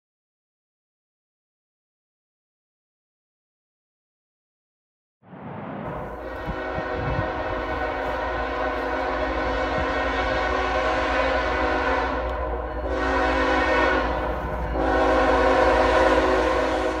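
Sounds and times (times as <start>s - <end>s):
passing train rumble: 5.3s - 17.0s
locomotive air horn: 6.1s - 17.0s.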